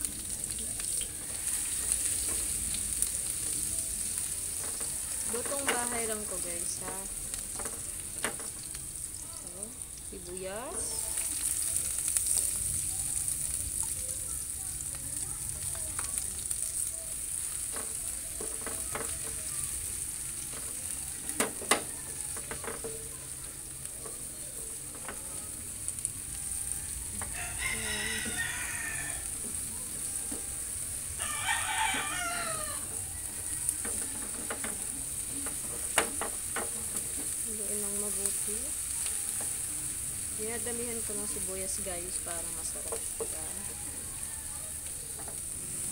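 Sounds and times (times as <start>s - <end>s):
garlic and onions sizzling in oil: 0.0s - 45.9s
spatula knocking on pan: 4.6s - 8.6s, 17.7s - 19.5s, 21.3s - 23.1s, 33.8s - 37.3s
rooster crowing: 4.7s - 5.8s, 21.0s - 22.8s, 26.3s - 35.2s, 42.8s - 45.3s.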